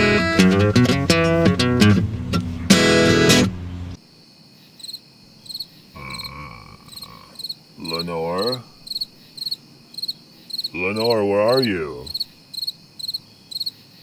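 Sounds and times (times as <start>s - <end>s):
crickets chirping: 4.0s - 14.0s
wavering vocal sound: 6.0s - 8.8s, 10.7s - 12.2s.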